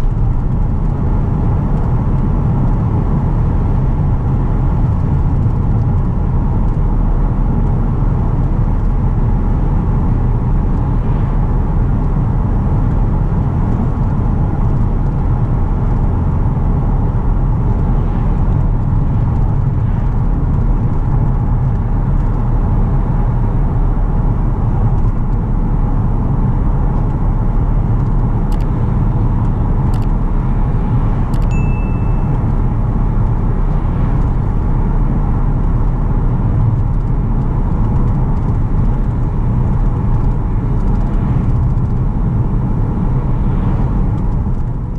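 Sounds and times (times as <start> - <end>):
car cabin road noise: 0.0 - 44.9
short ding: 31.4 - 32.4.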